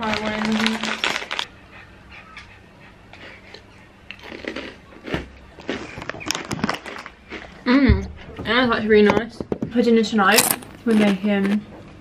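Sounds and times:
crisp cracker crunches: 0:00.0 - 0:01.5, 0:04.2 - 0:07.6.

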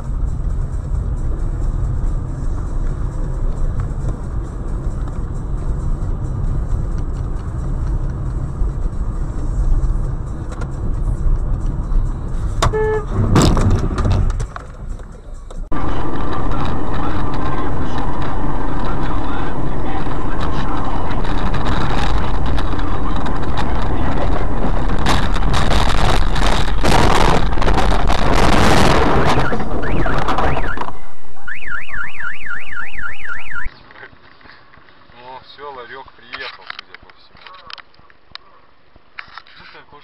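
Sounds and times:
knocks and bangs: 0:12.6 - 0:14.8
car alarm warbling: 0:12.7 - 0:13.1, 0:29.2 - 0:33.7
loud rushing noise: 0:15.7 - 0:31.4.

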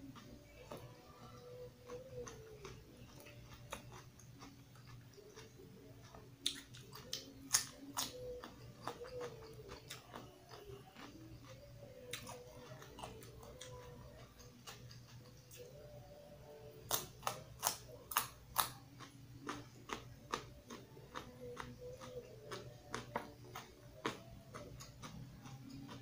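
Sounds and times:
chewing crisp raw vegetables: 0:00.0 - 0:16.0, 0:16.8 - 0:26.0.

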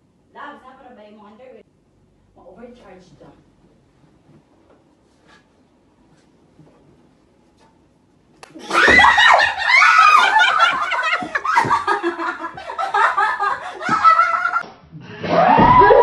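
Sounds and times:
women laughing loudly: 0:08.7 - 0:14.6.

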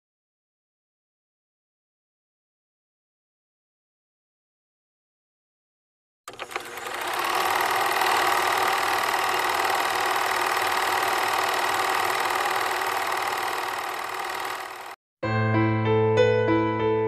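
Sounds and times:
film projector clattering: 0:06.3 - 0:15.0.

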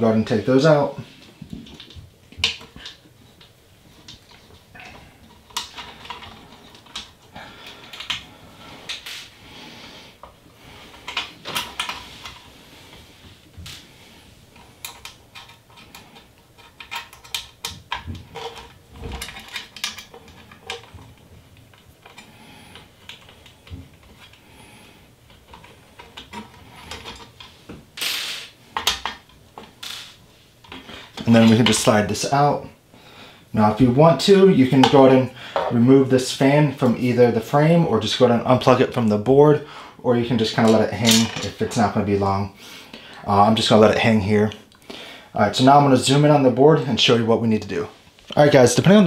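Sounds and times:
metal screws clicking and scraping: 0:04.1 - 0:08.2, 0:14.6 - 0:24.4, 0:25.3 - 0:30.8.

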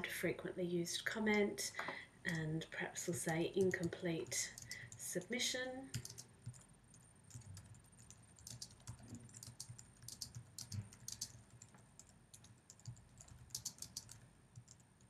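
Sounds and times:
keyboard typing: 0:03.2 - 0:05.0, 0:05.9 - 0:15.0.

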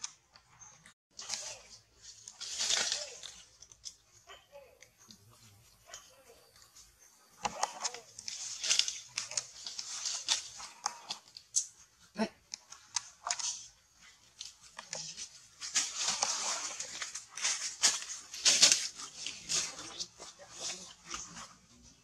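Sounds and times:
dry leaves crackling and rustling: 0:01.2 - 0:03.6, 0:07.8 - 0:11.0, 0:14.4 - 0:21.4.

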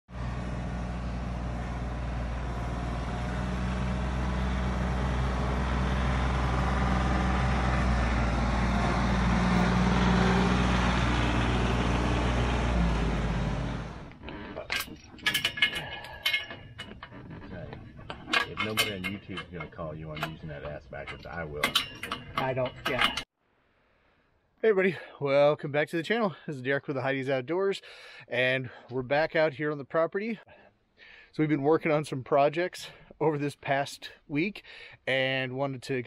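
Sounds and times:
tractor engine running: 0:00.1 - 0:23.3
sharp metallic clinks: 0:14.6 - 0:23.3.

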